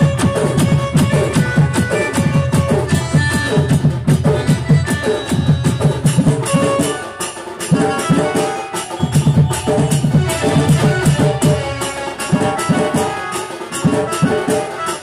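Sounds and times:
fast drum beats: 0.0s - 15.0s
held melody: 0.0s - 15.0s.

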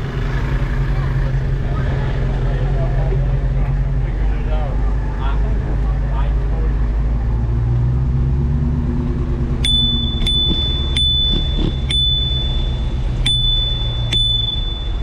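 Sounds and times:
car engine hum: 0.0s - 15.0s
bicycle bell ringing: 9.6s - 15.0s.

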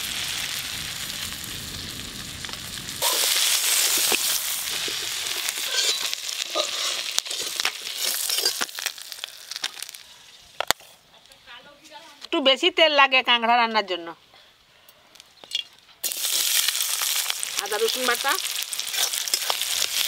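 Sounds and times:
hot oil sizzling in a wok: 0.0s - 10.6s, 16.0s - 20.0s
metal spatula scraping a pan: 3.0s - 8.9s, 18.8s - 20.0s.

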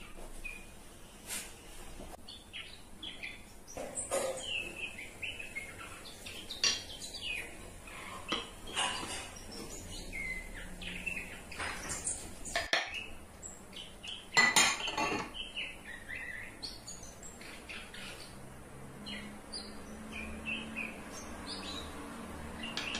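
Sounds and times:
ceramic dishes and spoons clinking: 8.2s - 9.4s, 14.4s - 15.4s.

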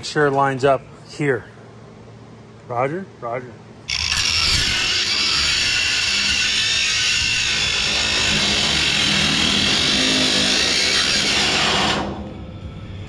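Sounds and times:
angle grinder cutting steel: 3.9s - 12.3s.

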